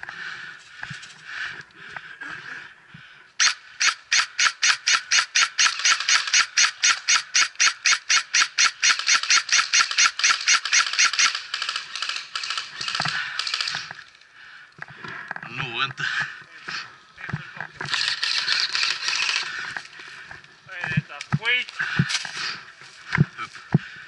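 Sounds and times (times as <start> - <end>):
airsoft gun shots: 3.4 - 11.8.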